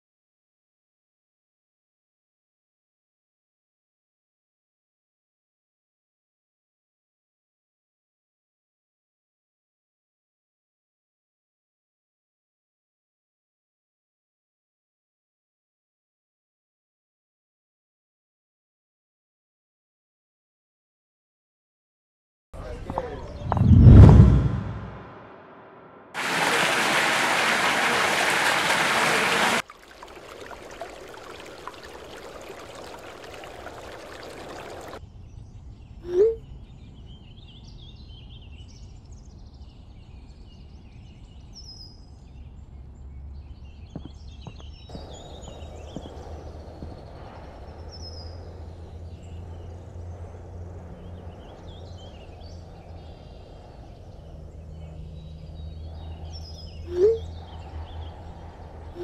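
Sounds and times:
birds chirping: 22.6 - 24.0, 26.2 - 35.0, 42.2 - 59.0
short rising tone: 23.4 - 26.0
water pouring over a weir: 26.2 - 35.0.

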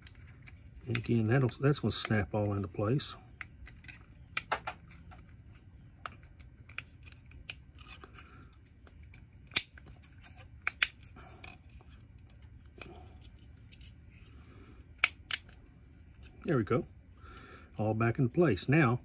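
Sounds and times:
sharp plastic clicks: 0.0 - 2.2, 15.0 - 15.6.

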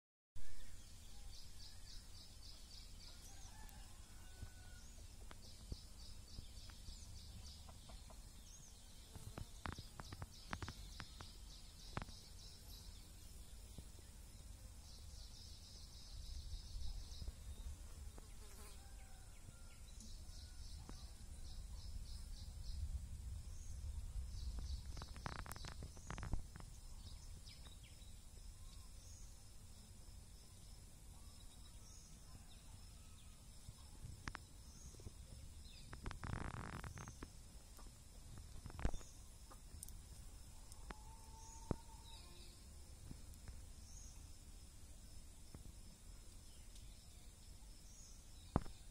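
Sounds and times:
insect pulsed trills: 8.6 - 48.9
low rumble: 22.0 - 25.2.

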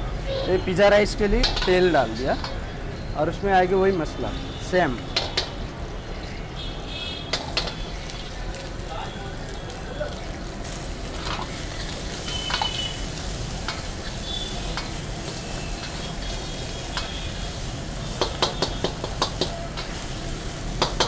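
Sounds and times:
steel ladle clanking on wok: 1.4 - 2.6, 18.2 - 20.0
vegetables sizzling in oil: 7.3 - 21.0.

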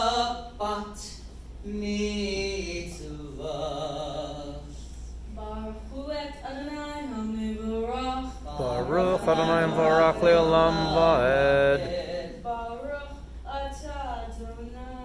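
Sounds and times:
man chanting a prayer: 8.5 - 12.0.

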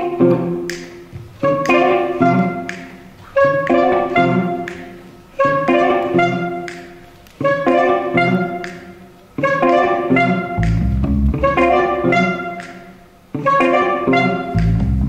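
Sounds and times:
live ensemble playing a riff: 0.0 - 15.0.

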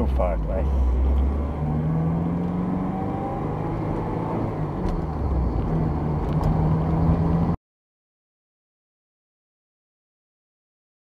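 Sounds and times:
car engine running: 0.0 - 7.6
low road rumble: 0.0 - 7.6.

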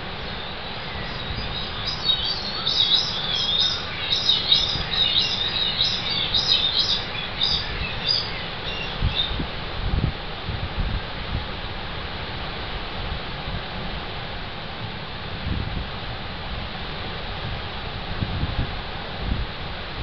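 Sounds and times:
birds chirping: 0.2 - 9.4.

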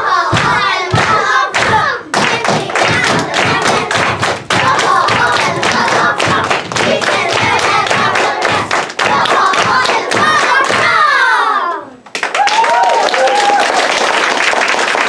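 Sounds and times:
children chanting: 0.0 - 12.0
children clapping in rhythm: 0.0 - 15.0.

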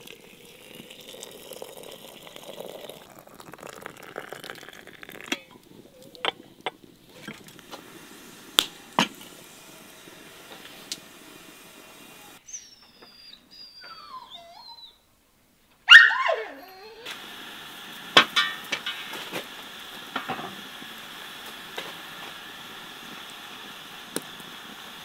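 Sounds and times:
animal whining cries: 12.5 - 15.0, 15.9 - 17.1.

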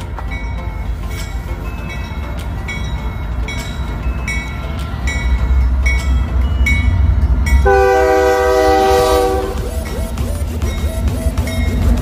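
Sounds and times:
diesel locomotives rumbling: 0.0 - 12.0
locomotive air horn chord: 7.6 - 12.0.

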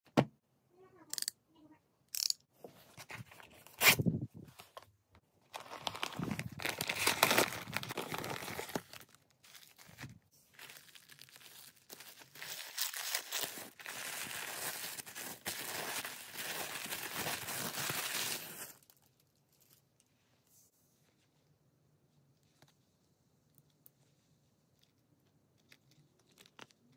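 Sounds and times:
tissue paper rustling: 5.5 - 18.8.

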